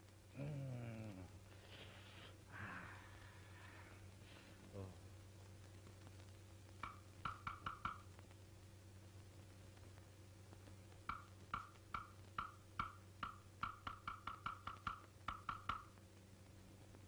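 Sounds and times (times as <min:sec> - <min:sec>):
steady low hum: 0:00.0 - 0:17.0
hollow wood-block knocks: 0:06.8 - 0:08.1, 0:11.1 - 0:15.9.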